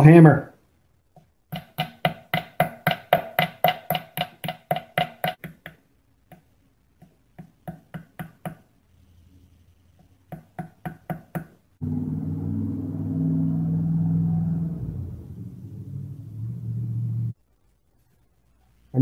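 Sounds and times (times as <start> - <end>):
hammer tapping on brass tube: 1.2 - 8.7, 10.0 - 11.6.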